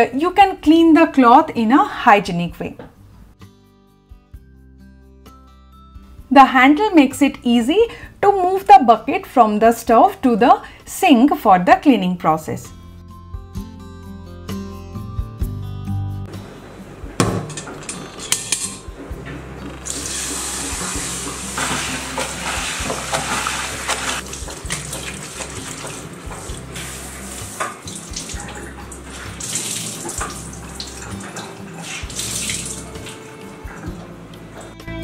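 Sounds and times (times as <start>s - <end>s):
cloth being wrung out: 19.8s - 33.0s
tap water splashing into sink: 19.9s - 26.6s, 27.4s - 33.2s.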